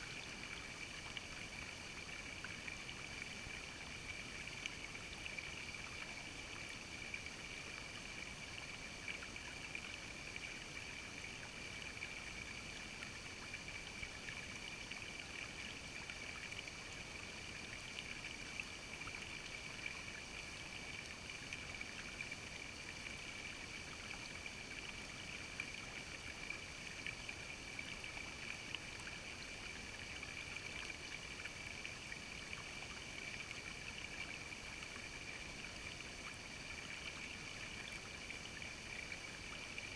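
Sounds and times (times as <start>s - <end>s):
creek water trickling over rocks: 0.0s - 39.9s.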